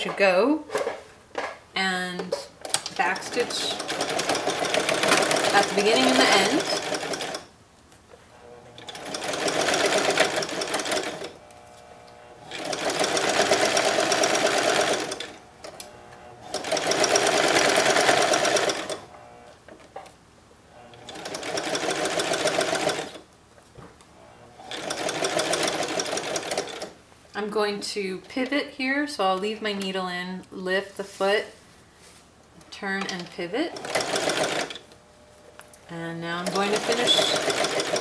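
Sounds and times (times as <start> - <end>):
electric sewing machine stitching: 2.8 - 7.5, 8.3 - 19.6, 20.8 - 23.2, 24.2 - 27.0, 33.1 - 34.9, 36.3 - 38.0.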